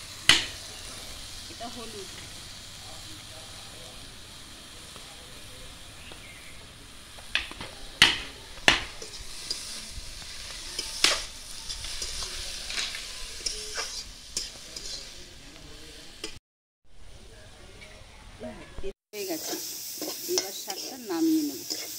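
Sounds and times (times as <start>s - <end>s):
frying sizzle: 0.0s - 16.4s, 18.4s - 21.9s
spatula scraping metal pan: 9.0s - 15.2s, 19.4s - 21.9s.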